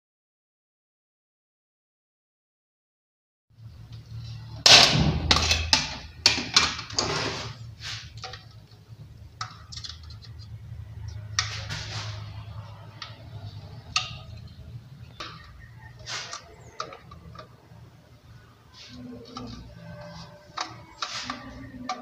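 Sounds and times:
plastic plate scraping and clacking: 0:05.2 - 0:08.8, 0:09.4 - 0:17.6, 0:18.7 - 0:22.0.

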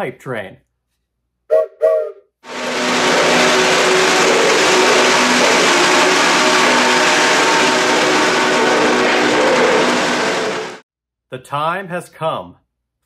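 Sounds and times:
model train running: 0:02.5 - 0:10.8
steady held tones: 0:02.5 - 0:10.8.

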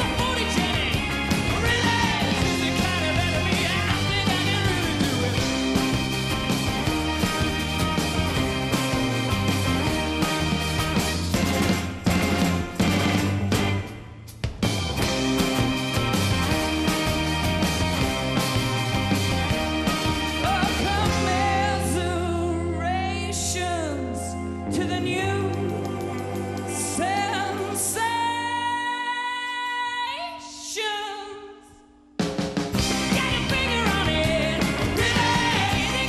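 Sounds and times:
lead vocals singing: 0:00.0 - 0:05.6, 0:20.4 - 0:25.8, 0:32.9 - 0:36.0
indie rock band playing: 0:00.0 - 0:29.2, 0:32.2 - 0:36.0.

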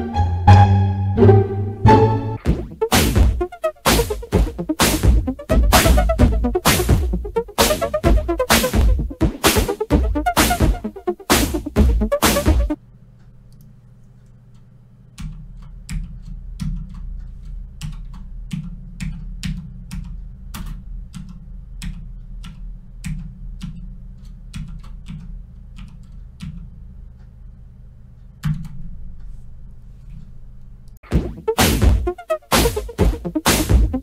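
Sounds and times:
computer keyboard typing: 0:15.2 - 0:26.7.

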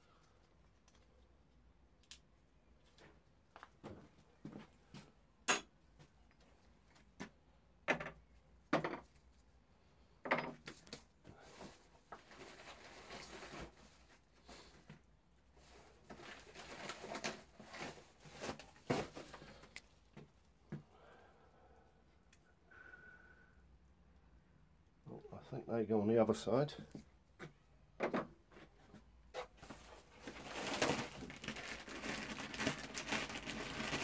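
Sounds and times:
rustling: 0:10.8 - 0:14.9, 0:15.5 - 0:20.3, 0:28.6 - 0:34.0.

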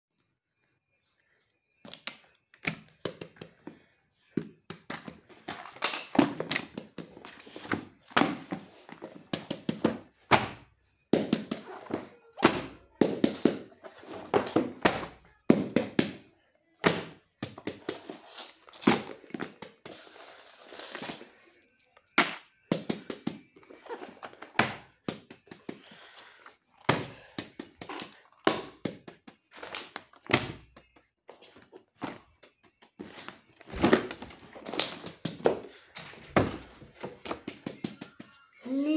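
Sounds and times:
books thunking down: 0:33.0 - 0:37.6.

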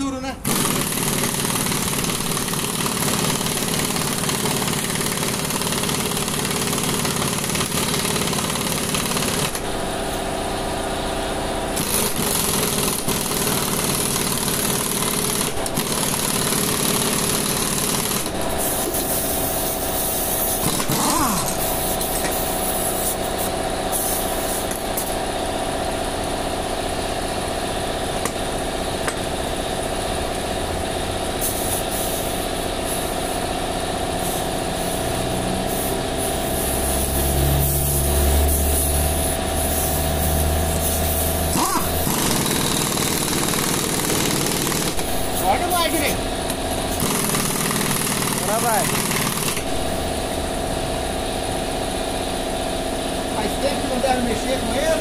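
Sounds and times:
pneumatic impact wrench hammering: 0:00.4 - 0:30.5, 0:31.3 - 0:53.2.

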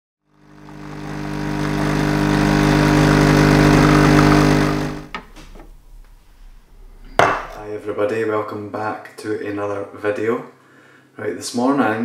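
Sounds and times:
espresso machine pump humming: 0:00.3 - 0:05.1.

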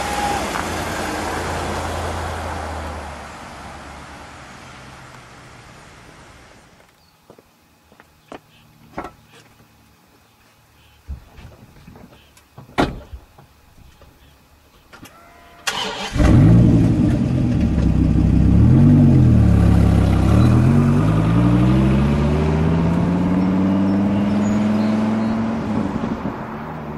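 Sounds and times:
sports car engine accelerating: 0:16.2 - 0:26.9.

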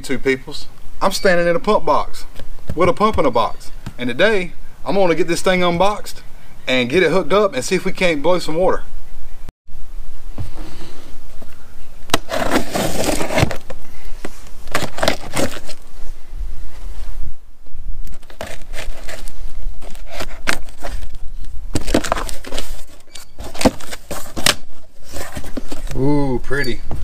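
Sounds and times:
cardboard flaps pulled open: 0:12.1 - 0:13.8, 0:14.7 - 0:15.8, 0:18.2 - 0:26.0.

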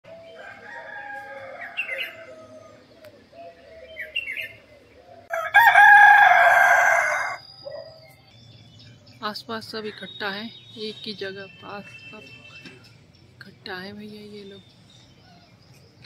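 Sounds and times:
rooster crowing: 0:00.1 - 0:02.9, 0:05.3 - 0:07.5
birds chirping: 0:00.1 - 0:16.0.

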